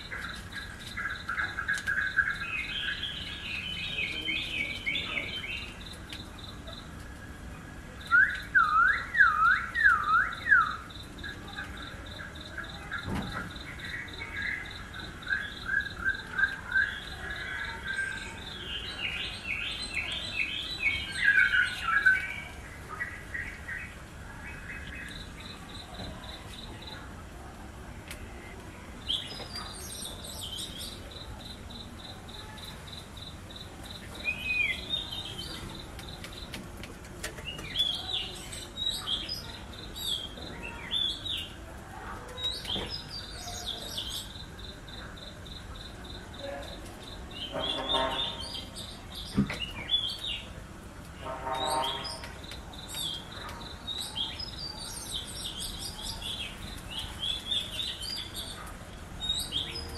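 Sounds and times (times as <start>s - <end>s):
fuller bird calls: 0.0s - 7.1s, 7.9s - 27.1s, 42.3s - 50.6s, 51.2s - 59.9s
birds chirping: 0.0s - 27.5s, 28.2s - 59.9s.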